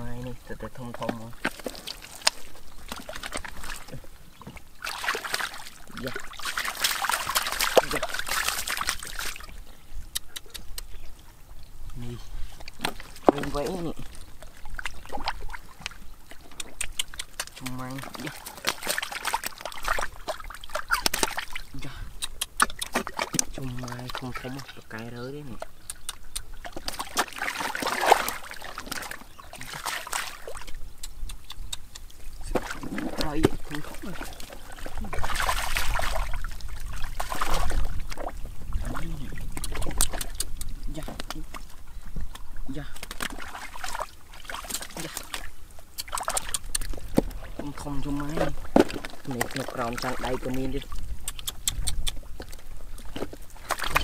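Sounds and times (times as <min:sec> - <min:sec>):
hands squelching in wet mud: 0:00.9 - 0:11.0, 0:11.9 - 0:54.0
sharp clicks: 0:16.5 - 0:17.6, 0:22.2 - 0:23.5, 0:31.0 - 0:32.2, 0:51.2 - 0:52.2.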